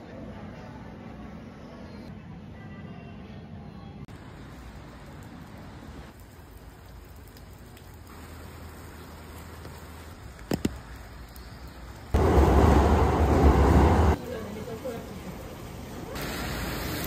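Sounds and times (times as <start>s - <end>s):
rain on a wet street: 4.1s - 17.0s
loud low rushing noise: 12.2s - 14.2s.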